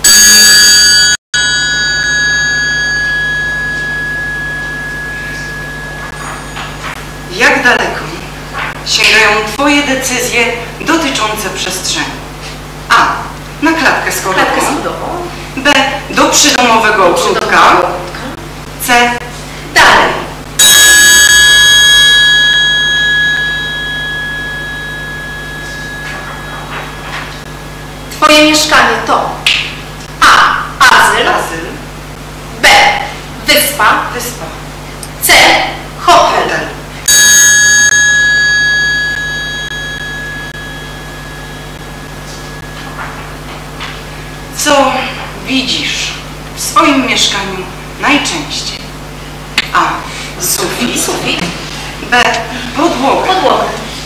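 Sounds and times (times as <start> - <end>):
bell-like chime ringing: 0.0 - 7.3, 20.6 - 27.9, 37.1 - 43.3.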